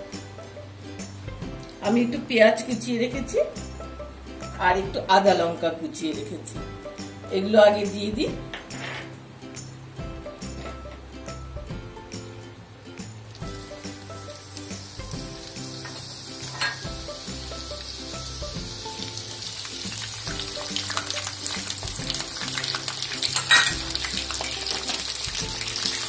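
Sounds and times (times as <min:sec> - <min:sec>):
vegetables sizzling in hot oil: 0:13.2 - 0:26.0.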